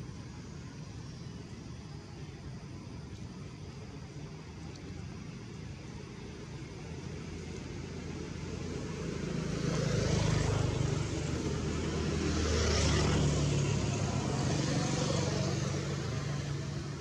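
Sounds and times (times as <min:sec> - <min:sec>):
vehicle passing: 0:07.8 - 0:16.8.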